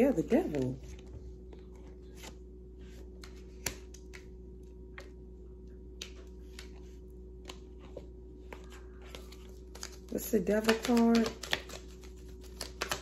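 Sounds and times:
low electrical hum: 0.0 - 13.0
cards clicking and tapping on table: 10.6 - 13.0.

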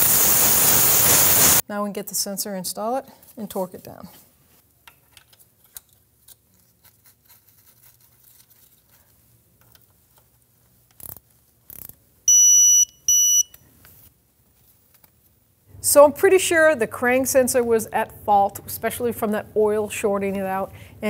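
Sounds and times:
faint clicks and handling noises: 4.8 - 12.0, 13.5 - 15.4
short electronic beeps: 12.3 - 13.6.

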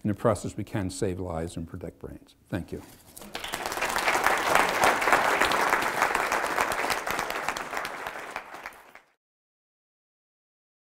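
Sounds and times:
audience applauding: 3.2 - 9.2.

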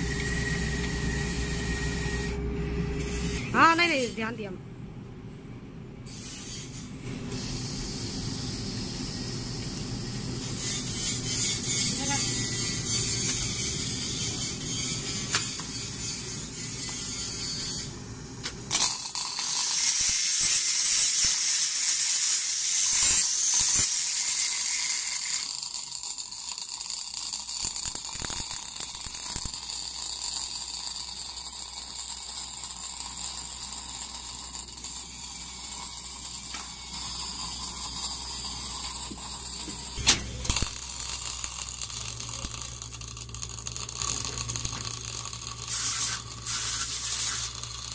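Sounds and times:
arc welding crackling hiss: 6.1 - 47.9.

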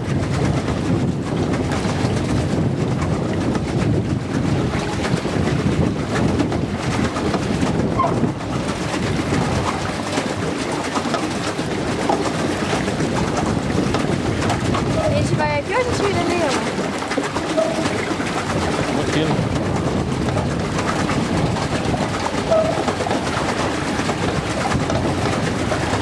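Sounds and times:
boat engine rumbling: 0.0 - 26.0.

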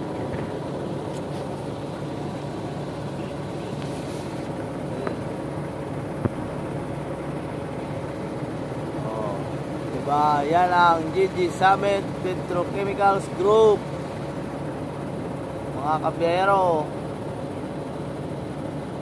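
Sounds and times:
engine idling hum: 0.0 - 19.0.

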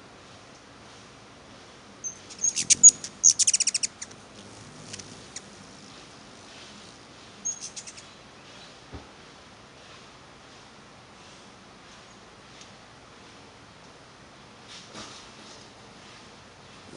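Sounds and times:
hummingbirds chattering: 2.0 - 8.8.

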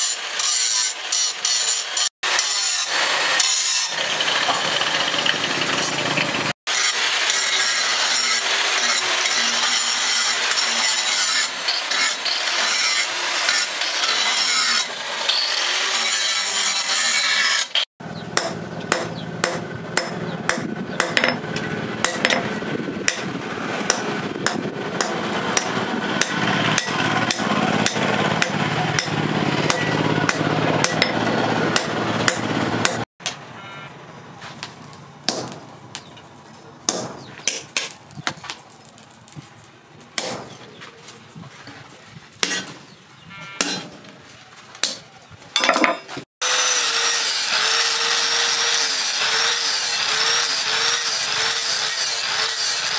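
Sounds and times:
angle grinder grinding: 0.0 - 17.9, 46.4 - 52.9
hammer striking steel on anvil: 18.4 - 21.4, 22.0 - 23.3, 23.9 - 31.2, 31.8 - 33.4, 36.9 - 38.0, 40.2 - 40.5, 43.6 - 44.0
metal knocks and clanks: 18.4 - 23.3.

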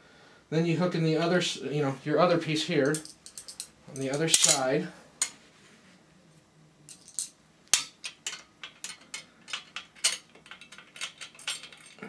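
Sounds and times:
metal parts clinking: 2.8 - 5.3, 6.9 - 12.0.

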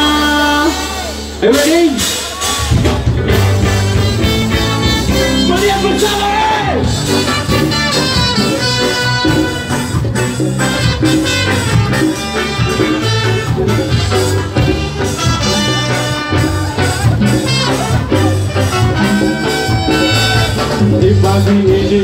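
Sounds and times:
ska band playing live: 0.0 - 22.0.

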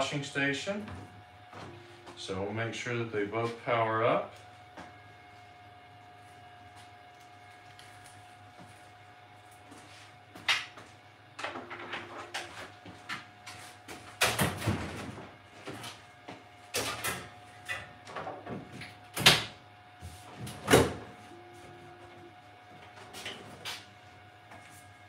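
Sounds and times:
faint steady hum: 0.0 - 9.6, 20.0 - 23.4.

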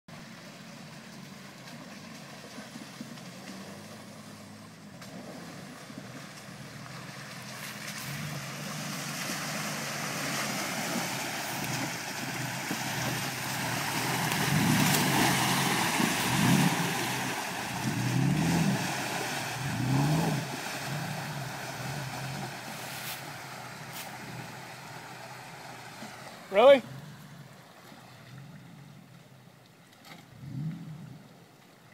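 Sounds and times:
water and mud splashing: 0.1 - 31.9
truck engine revving: 3.4 - 27.5.

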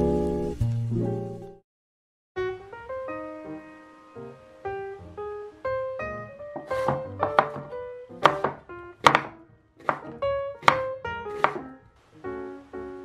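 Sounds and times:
piano music: 0.0 - 1.6, 2.4 - 13.0
knife cutting on wooden board: 6.6 - 11.7.

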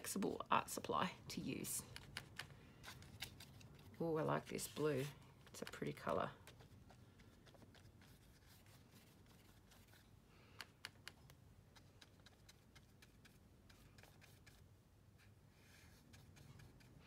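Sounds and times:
paintbrush scratching on paper: 2.0 - 10.1, 11.7 - 17.0.

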